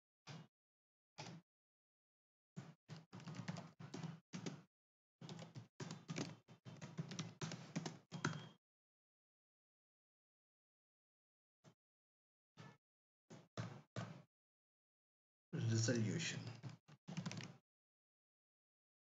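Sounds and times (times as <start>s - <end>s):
typing on keyboard: 2.9s - 4.6s, 5.2s - 8.6s, 16.4s - 17.6s.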